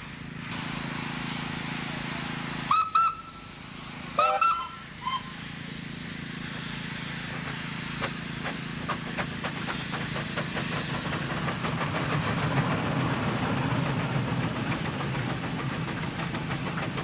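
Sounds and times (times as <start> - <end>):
steam engine rumble and hiss: 0.0 - 17.0
steam whistle toots: 0.1 - 5.6.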